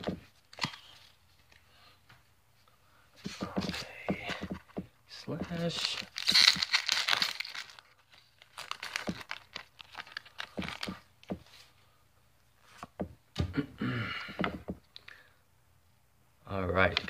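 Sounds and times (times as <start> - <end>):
foil wrapper tearing and crinkling: 5.6 - 11.0.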